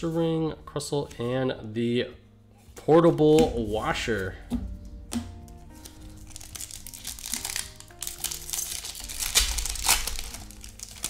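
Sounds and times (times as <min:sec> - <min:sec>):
foil wrapper crinkling and tearing: 0:05.7 - 0:11.0.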